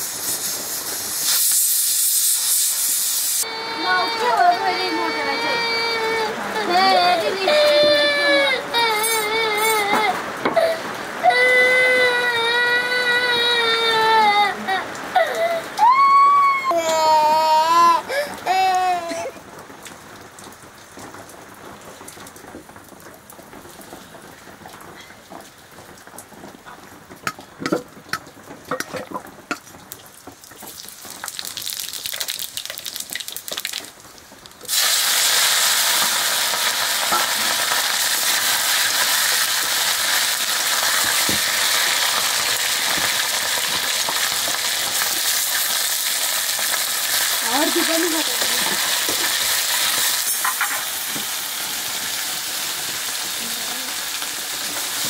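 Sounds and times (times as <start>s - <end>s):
food sizzling in hot oil: 0.0s - 5.0s, 6.6s - 10.0s, 27.3s - 55.0s.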